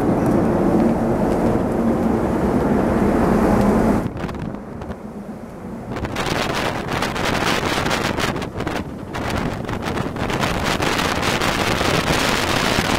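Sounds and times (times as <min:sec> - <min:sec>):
ferry machinery droning: 0:00.0 - 0:12.9
wind buffeting microphone: 0:00.0 - 0:12.9.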